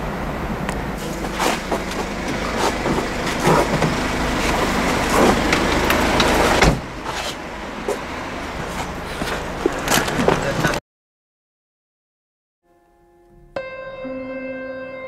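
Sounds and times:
car engine running: 0.0 - 10.8
heavy thump: 6.6 - 7.0.

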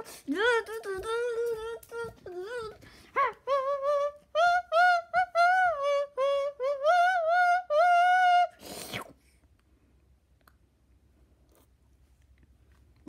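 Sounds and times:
child singing wordless tune: 0.0 - 8.4
short breathy hiss: 8.6 - 9.4.

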